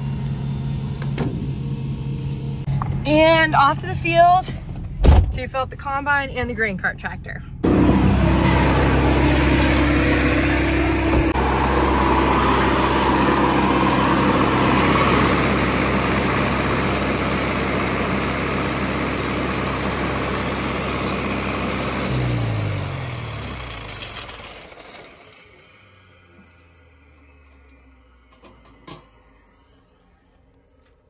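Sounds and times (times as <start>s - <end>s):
engine running and spinning down: 7.6s - 31.0s.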